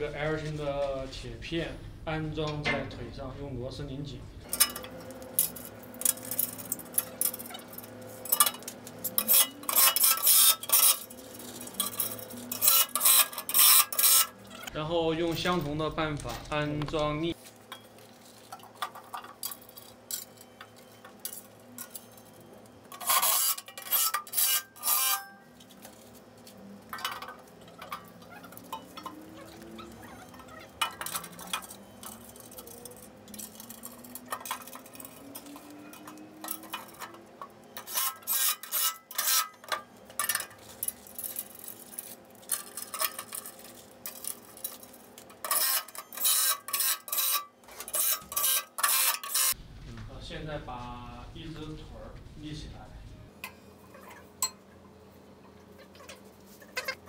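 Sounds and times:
metal brackets clinking: 4.5s - 16.8s, 17.7s - 49.6s.

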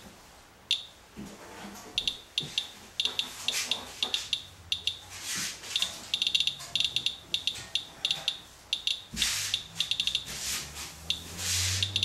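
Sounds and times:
geiger counter chirping: 2.0s - 5.0s, 5.8s - 10.3s, 11.1s - 12.0s.

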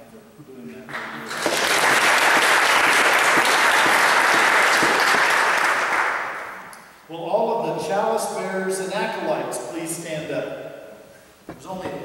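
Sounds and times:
congregation applauding: 0.9s - 6.7s.

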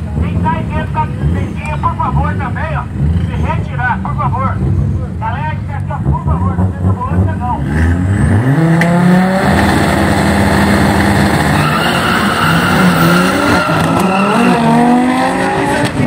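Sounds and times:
car engines revving: 0.0s - 16.0s
tyre squeal: 11.3s - 14.9s.

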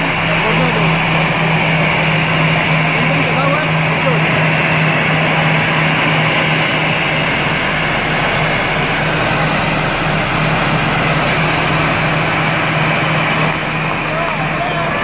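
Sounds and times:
jet engines rushing: 0.0s - 15.0s
low engine hum: 0.0s - 15.0s.

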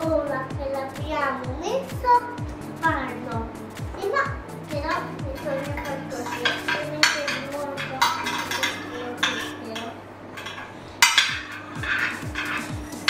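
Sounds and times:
metal spoon scraping glass dish: 5.4s - 13.0s
spoon clinking on glass: 5.8s - 12.8s.

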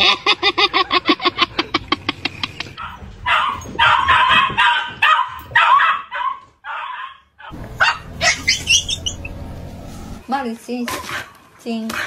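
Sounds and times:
dog barking and yipping: 2.8s - 9.4s.

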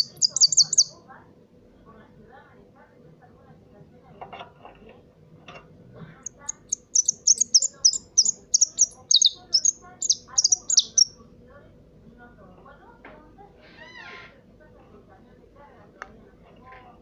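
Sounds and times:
finch singing sharp chirps: 0.0s - 0.9s, 6.2s - 11.2s.

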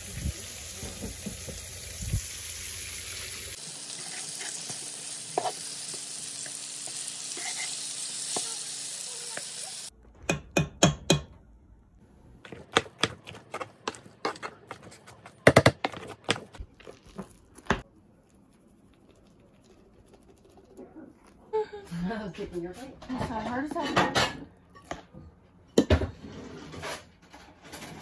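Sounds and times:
fish sizzling in oil: 0.0s - 9.9s.

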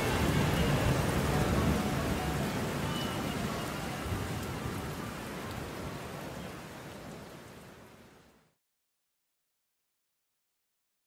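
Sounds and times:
rain hiss on car: 0.0s - 8.5s.

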